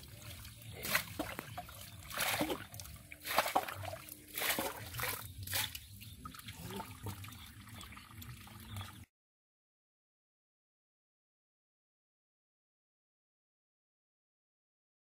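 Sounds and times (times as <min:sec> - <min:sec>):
water splashing and trickling: 0:00.0 - 0:09.1.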